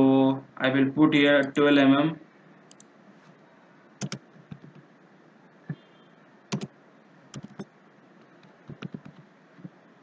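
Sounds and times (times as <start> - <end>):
keyboard key presses: 4.0 - 4.8, 6.5 - 6.7, 7.4 - 7.7, 8.4 - 9.7.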